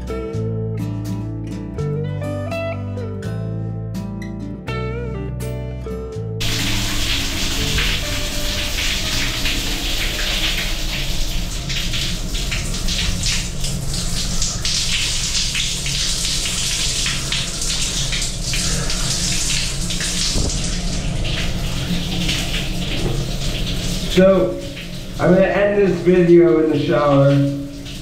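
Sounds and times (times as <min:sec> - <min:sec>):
shower water pouring and splashing: 0:06.4 - 0:28.0.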